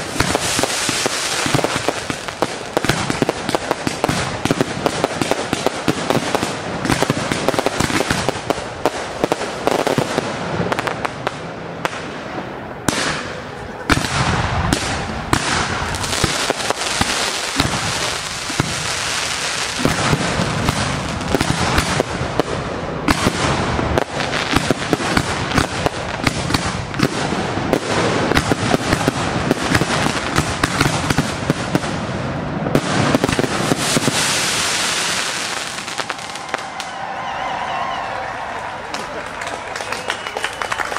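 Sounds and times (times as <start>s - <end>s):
fireworks popping and crackling: 0.0s - 37.0s
firework bang: 9.3s - 31.9s.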